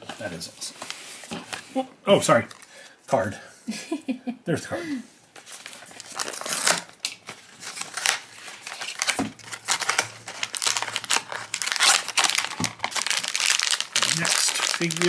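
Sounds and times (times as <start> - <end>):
wrapping crinkling: 5.4 - 15.0.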